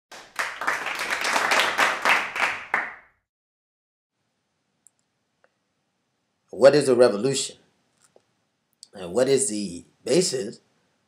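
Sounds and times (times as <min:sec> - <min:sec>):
applause: 0:00.1 - 0:03.2.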